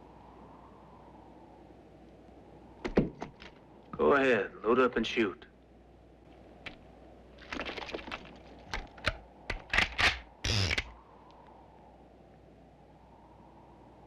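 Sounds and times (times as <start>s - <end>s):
guns being reloaded: 8.7s - 10.9s.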